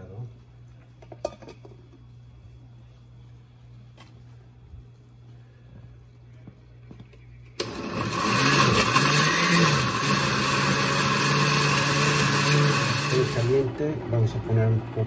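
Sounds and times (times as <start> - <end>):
blender motor grinding: 7.6 - 14.4.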